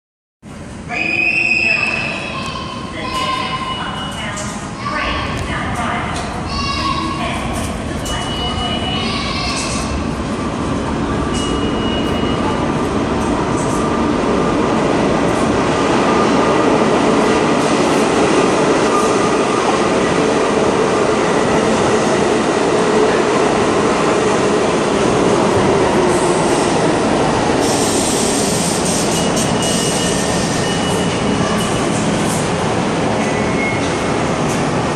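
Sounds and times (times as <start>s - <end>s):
subway train rumbling: 0.4s - 34.9s
air hiss: 27.6s - 30.6s.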